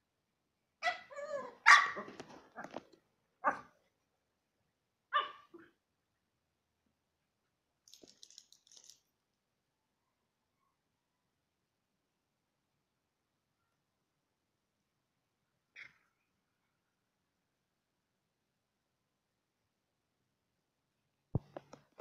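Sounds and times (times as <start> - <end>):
dogs barking: 1.6 - 2.2.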